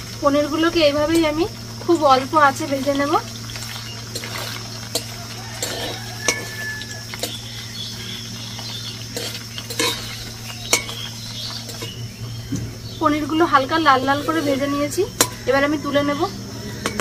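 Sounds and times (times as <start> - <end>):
faint oil sizzle: 0.0 - 17.0
metal spatula scraping a pan: 3.6 - 7.5, 8.7 - 12.0, 13.8 - 15.4.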